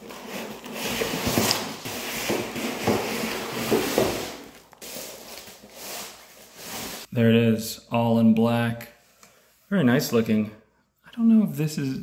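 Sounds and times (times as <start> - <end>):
packaging knocks and scrapes: 0.0 - 7.1
foam rubbing against cardboard: 3.5 - 7.1.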